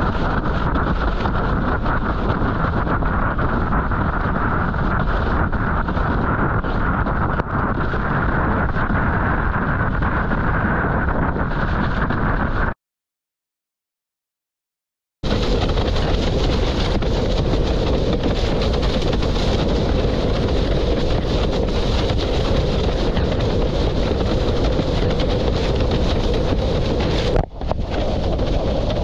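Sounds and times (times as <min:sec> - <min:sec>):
wind buffeting microphone: 0:00.0 - 0:12.8, 0:15.2 - 0:29.0
water rushing: 0:15.3 - 0:29.0.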